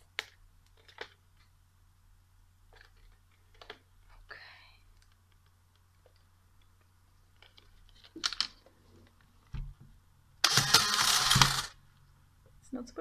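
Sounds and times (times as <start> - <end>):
camera motor whirring: 10.4 - 11.8.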